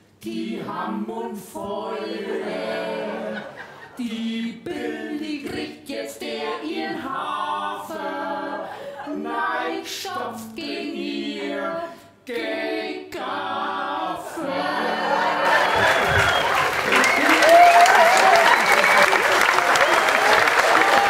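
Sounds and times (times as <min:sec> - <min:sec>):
man and women singing together: 0:00.2 - 0:16.4.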